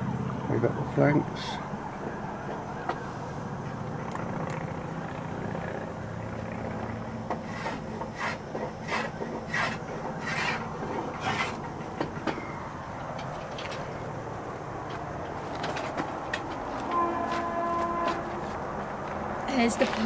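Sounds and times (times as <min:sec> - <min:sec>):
hand tool scraping wood: 0:07.3 - 0:11.8.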